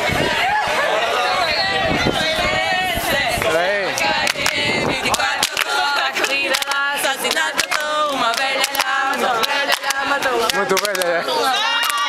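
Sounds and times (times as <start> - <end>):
women singing a chant: 0.0 - 12.0
hand claps: 4.0 - 11.2.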